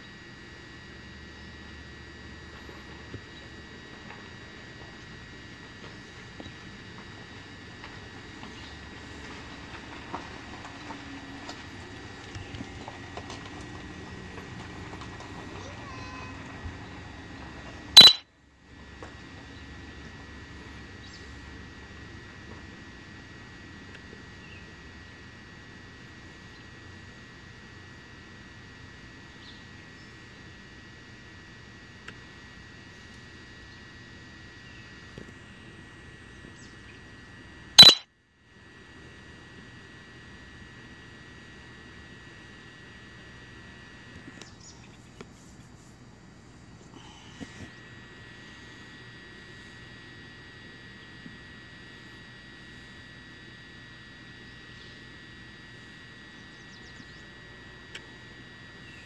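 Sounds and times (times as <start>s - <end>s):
high-pitched hum: 0.0s - 10.2s, 10.8s - 59.0s
faint high-pitched whine: 17.9s - 18.3s, 23.2s - 59.0s
faint high chirps: 18.0s - 18.2s, 37.8s - 38.0s
small ticks: 23.9s - 24.7s, 32.0s - 33.8s, 37.8s - 38.0s, 44.1s - 46.0s, 56.4s - 58.3s.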